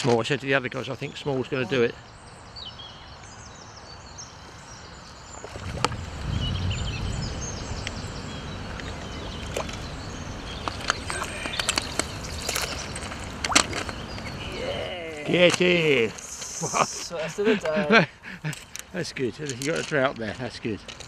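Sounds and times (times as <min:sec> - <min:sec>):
small birds chirping: 0:00.1 - 0:21.0
low rumble: 0:05.6 - 0:08.6
steady hiss: 0:15.4 - 0:19.2.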